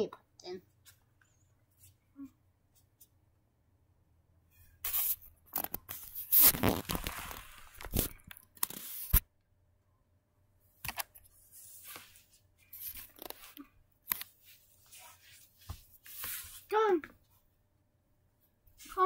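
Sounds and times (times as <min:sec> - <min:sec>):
rustling and scraping on microphone: 0:00.8 - 0:03.2, 0:04.5 - 0:09.2, 0:11.2 - 0:17.4.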